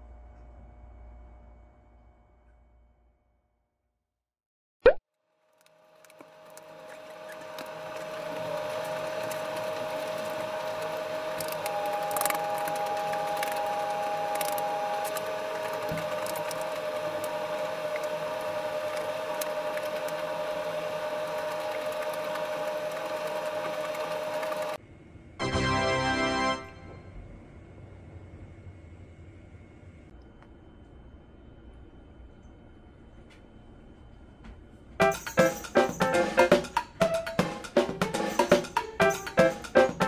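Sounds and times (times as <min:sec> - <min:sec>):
mechanical hum with whine: 0:00.0 - 0:03.4, 0:05.3 - 0:37.2.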